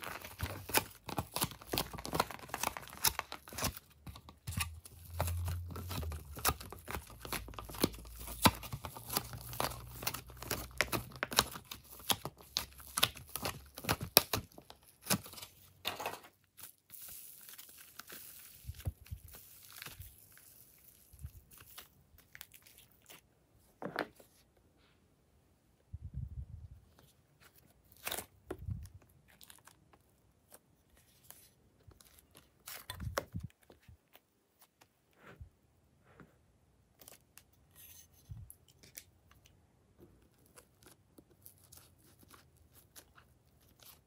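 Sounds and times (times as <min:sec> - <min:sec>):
hands squeezing and tearing clay: 0:16.6 - 0:23.3.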